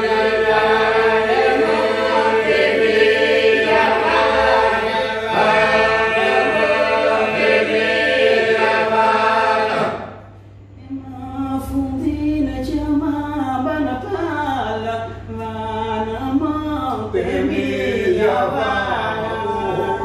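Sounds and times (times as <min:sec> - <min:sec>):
group singing a cappella: 0:00.0 - 0:20.0.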